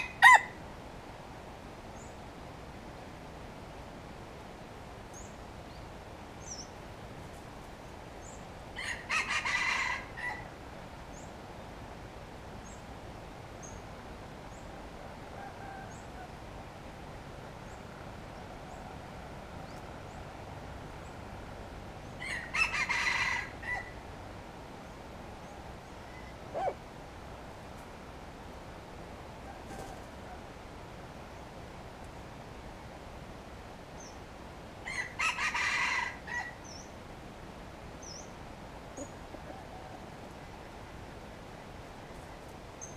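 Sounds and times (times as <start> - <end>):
rooster crowing: 0.0 - 0.6, 8.8 - 10.5, 15.2 - 16.4, 22.2 - 24.0, 34.8 - 36.6
small birds chirping: 5.0 - 9.1, 11.0 - 11.8, 17.5 - 21.3, 37.9 - 40.8, 41.6 - 42.9.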